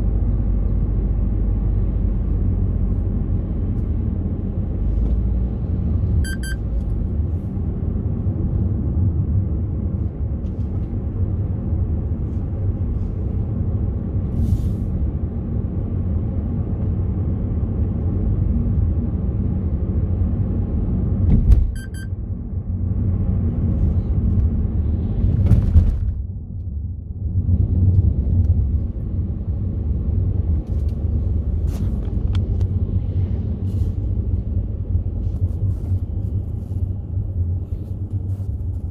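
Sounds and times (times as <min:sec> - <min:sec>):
car road and engine rumble: 0:00.0 - 0:38.9
short electronic beeping: 0:06.2 - 0:06.6, 0:21.8 - 0:22.1
brief thump: 0:21.3 - 0:21.8.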